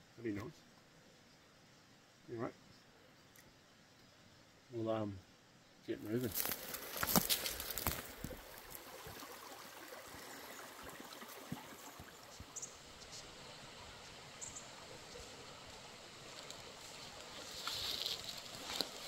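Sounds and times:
stream rushing over rocks: 6.3 - 19.0.

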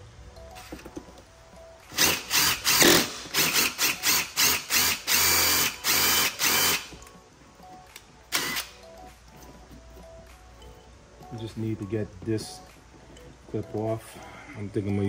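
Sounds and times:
impact driver drilling: 1.9 - 6.9.

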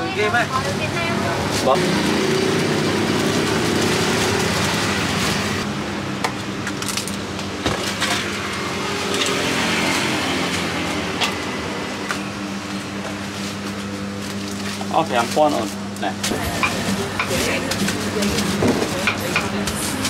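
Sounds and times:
road traffic hum: 0.0 - 14.8.

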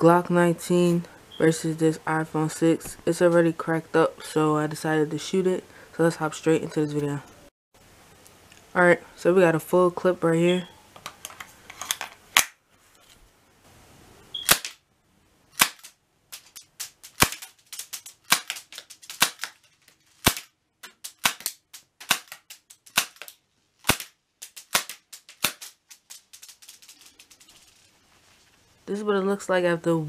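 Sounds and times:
bb pistol shots cracking glass: 14.4 - 14.8, 15.5 - 19.6, 20.2 - 25.8.

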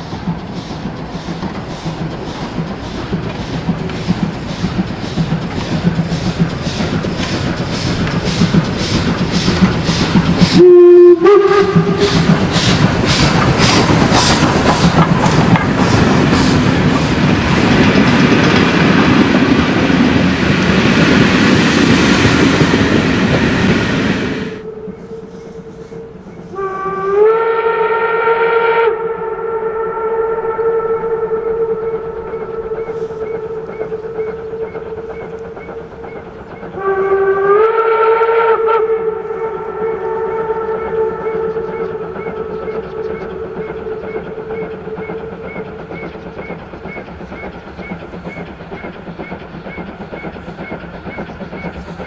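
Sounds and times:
steam locomotive exhaust beats: 0.0 - 52.0
train coaches rumbling past: 0.0 - 52.0
steam locomotive whistle: 7.7 - 18.2, 20.8 - 46.1.

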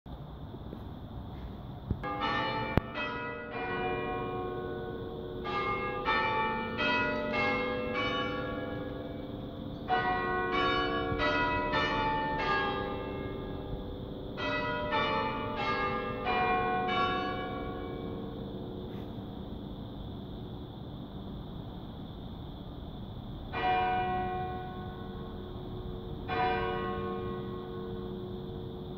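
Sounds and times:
church bells chiming a tune: 2.0 - 19.0, 23.5 - 25.4, 26.0 - 28.8.

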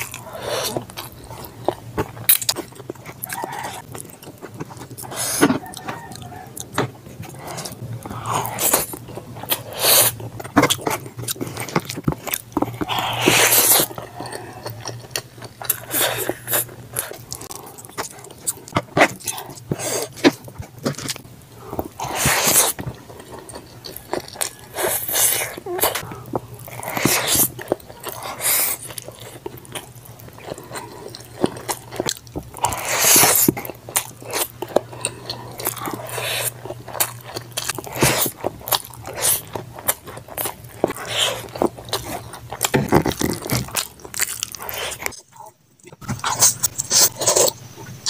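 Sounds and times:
wet chewing and mouth smacking: 0.0 - 48.0
slurping noodles: 12.8 - 14.7, 22.0 - 29.4, 32.6 - 33.5.

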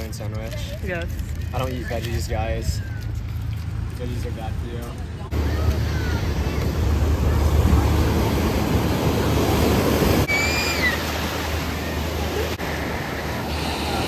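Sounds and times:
ocean surf breaking: 5.3 - 14.0
high gliding cry: 10.2 - 12.0.

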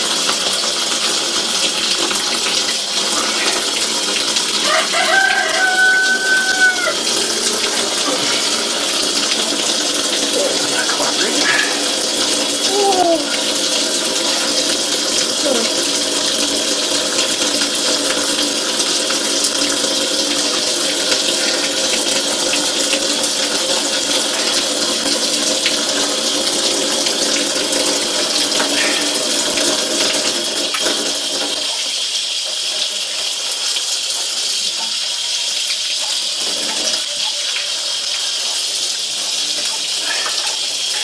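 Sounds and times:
tap water running into sink: 0.0 - 41.0
water splashing over chicken: 1.5 - 12.0.

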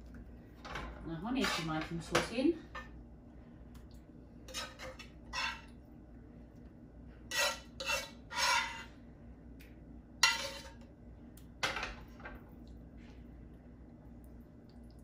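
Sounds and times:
metal spoon scraping a bowl: 1.4 - 1.8, 4.5 - 5.7, 7.3 - 8.9, 10.2 - 10.8.

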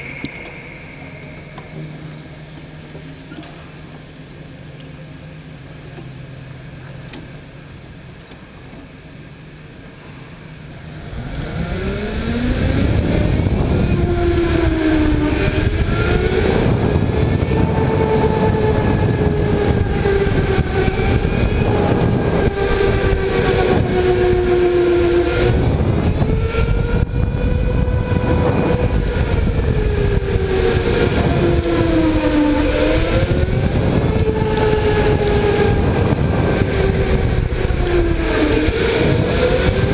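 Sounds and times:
low rumble: 10.7 - 39.9.

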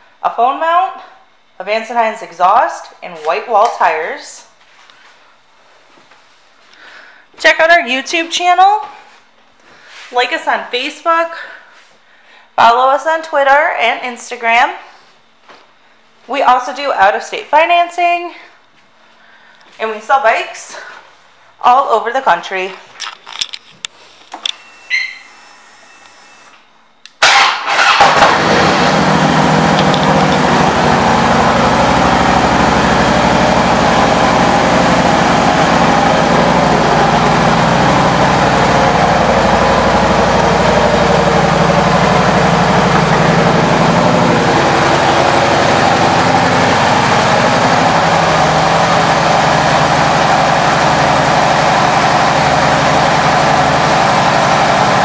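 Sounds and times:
motorcycle engine starting and idling: 27.1 - 55.0.

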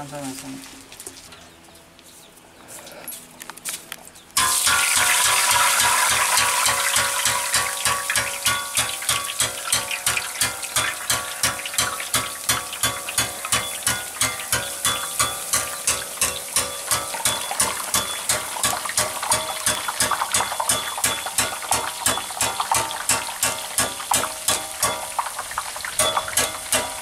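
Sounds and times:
oil sizzling: 4.4 - 27.0.

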